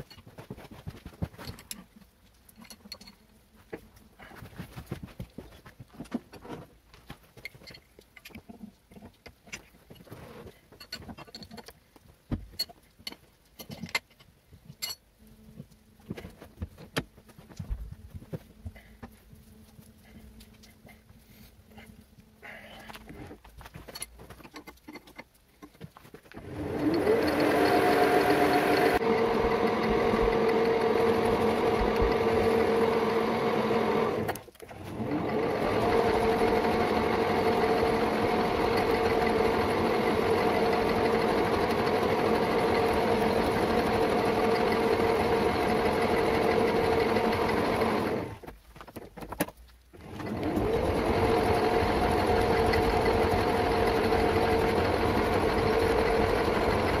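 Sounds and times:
metal lathe whining: 26.4 - 48.4, 50.1 - 57.0.

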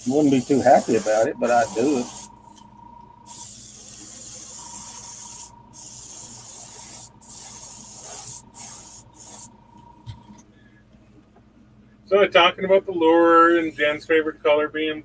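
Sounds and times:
airbrush air hiss: 0.0 - 2.6, 3.2 - 9.6.

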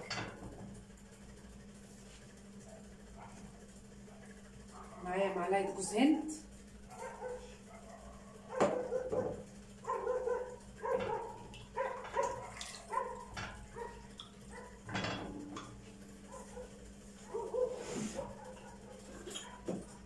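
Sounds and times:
dog barking: 2.7 - 3.4, 4.1 - 5.1, 6.9 - 14.8, 16.3 - 19.7.

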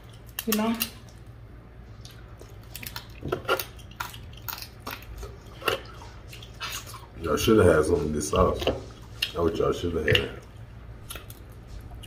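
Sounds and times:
wet eating smacks: 1.9 - 7.2, 8.0 - 12.0.

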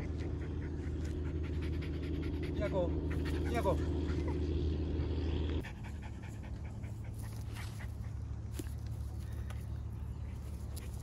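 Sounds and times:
dog panting: 0.0 - 4.4, 5.0 - 8.3.

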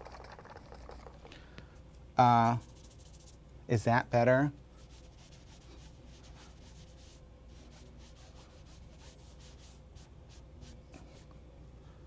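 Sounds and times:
sponge dabbing paint on canvas: 2.3 - 3.4, 4.8 - 11.3.

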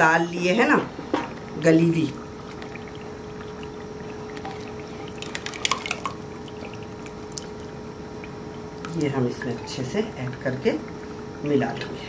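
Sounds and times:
faint steady hum: 0.0 - 12.0
thick liquid pouring and splatting: 3.5 - 7.7.

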